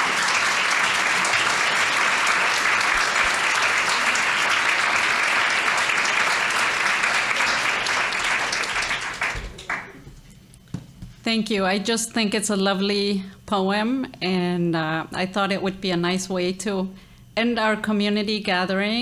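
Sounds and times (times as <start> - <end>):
audience applauding: 0.0 - 10.0.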